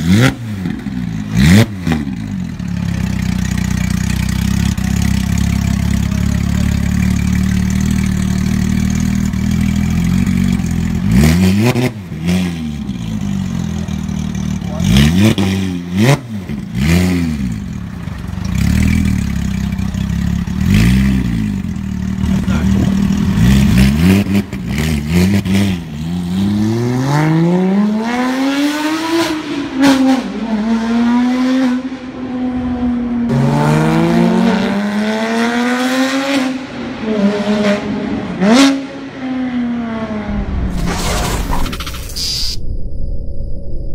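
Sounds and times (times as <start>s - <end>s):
car engine idling: 2.2s - 11.1s, 17.4s - 23.8s
sports car engine revving: 4.3s - 40.4s.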